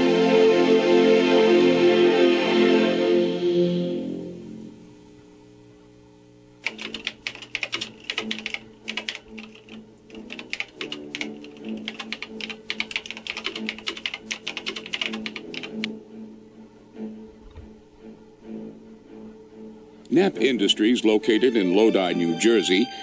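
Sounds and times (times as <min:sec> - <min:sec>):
low drone: 0:00.0 - 0:05.5
keyboard key clicks: 0:06.6 - 0:15.9.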